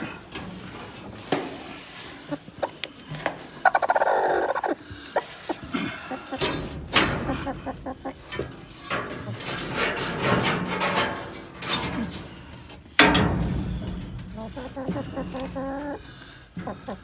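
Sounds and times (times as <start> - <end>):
hen calling in distress: 3.6 - 4.8, 14.4 - 16.0.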